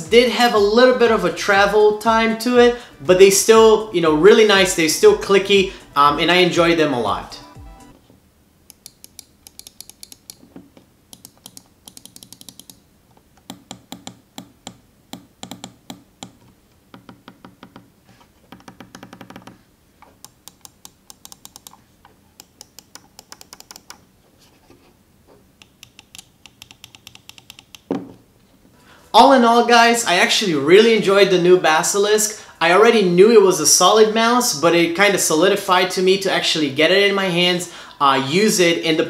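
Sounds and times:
mouse buttons clicking: 8.7 - 10.5, 11.1 - 17.9, 20.1 - 21.8, 22.4 - 24.0, 25.6 - 27.9.

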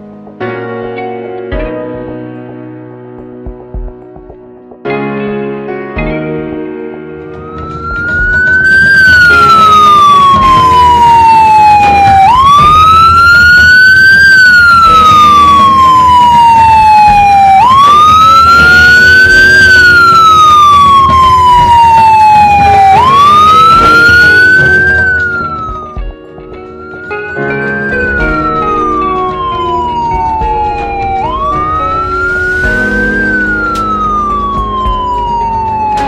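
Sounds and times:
siren wailing: 7.3 - 36.0.

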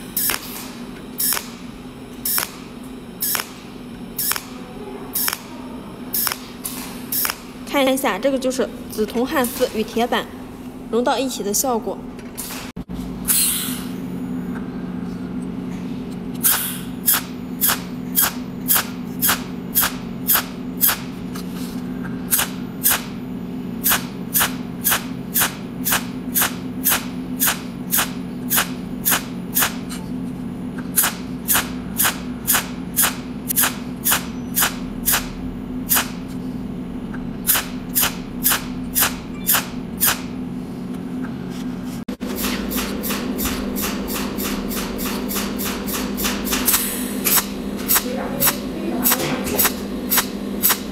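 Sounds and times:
spot-weld arc snaps: 0.0 - 4.6, 5.2 - 5.5, 6.1 - 7.7, 16.4 - 21.2, 22.3 - 23.2, 23.8 - 30.0, 30.9 - 36.3, 37.4 - 40.4, 42.3 - 50.9
low machine hum: 0.0 - 50.9.

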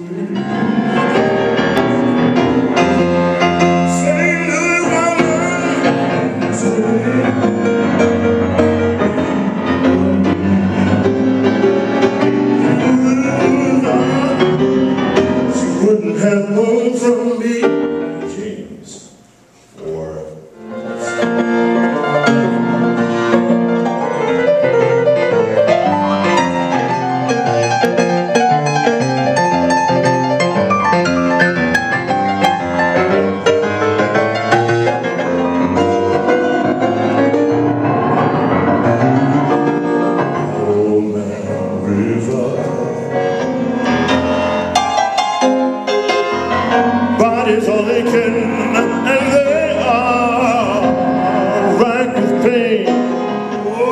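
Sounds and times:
man singing: 0.0 - 1.3, 3.6 - 8.8, 12.5 - 19.1, 40.3 - 43.3, 47.2 - 53.9
jazz grand piano: 0.0 - 53.9.

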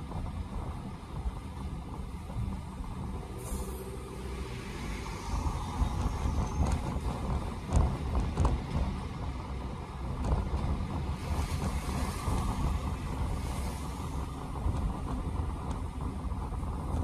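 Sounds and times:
car road rumble: 0.0 - 17.0
tyre hiss on wet road: 11.2 - 14.8.

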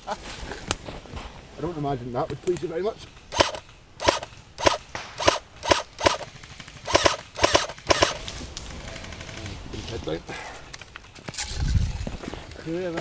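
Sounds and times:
airsoft rifle shots: 3.2 - 9.6.

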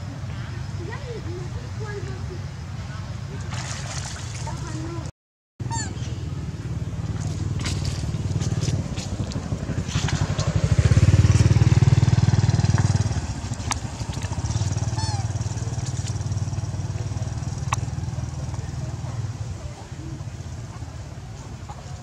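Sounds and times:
small motor engine running: 5.7 - 19.4.

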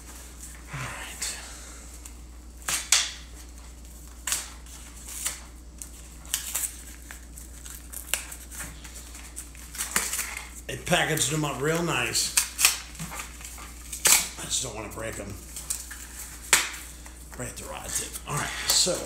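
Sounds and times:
packaging rustling and ripping: 3.1 - 14.4.

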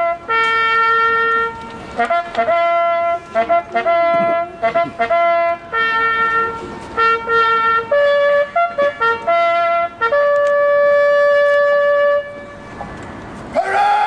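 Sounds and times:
bugle call: 0.0 - 12.7.

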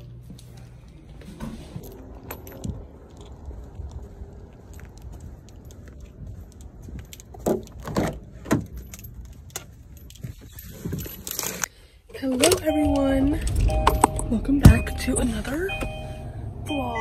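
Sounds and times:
keys jangling: 1.8 - 3.6, 4.7 - 11.7.

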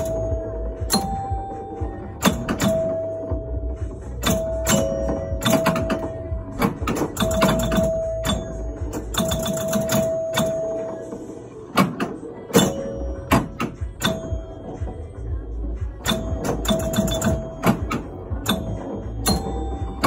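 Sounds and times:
pinball machine mechanical clacks: 0.0 - 15.1, 15.9 - 20.0.

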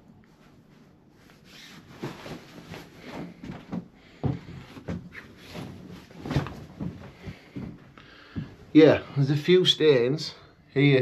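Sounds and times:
rustling: 0.2 - 8.4
knocks and thumps on bed: 2.0 - 7.8.

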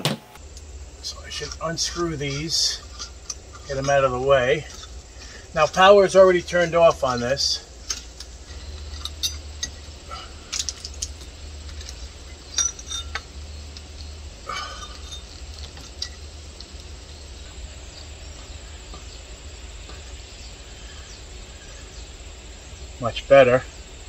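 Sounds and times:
crickets chirping: 0.4 - 24.0
metal and glass clinks: 7.8 - 16.3.

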